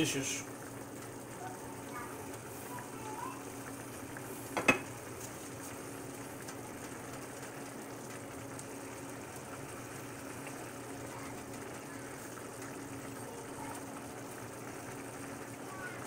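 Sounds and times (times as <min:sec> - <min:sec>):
sauce simmering and sizzling: 0:00.0 - 0:16.0
wooden spatula knocking pan: 0:04.6 - 0:04.9.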